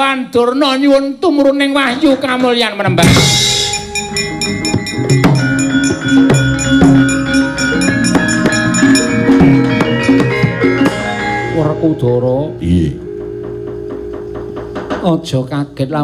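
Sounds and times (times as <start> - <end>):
drum: 1.9 - 11.6, 13.2 - 15.7
gamelan ensemble playing: 3.0 - 14.1
ringing metallophone notes: 3.0 - 14.4.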